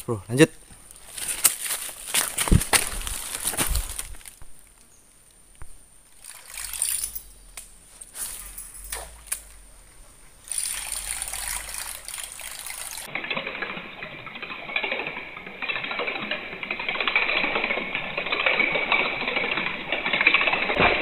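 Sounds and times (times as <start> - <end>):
water splashing and trickling: 6.1 - 7.4, 10.4 - 21.0.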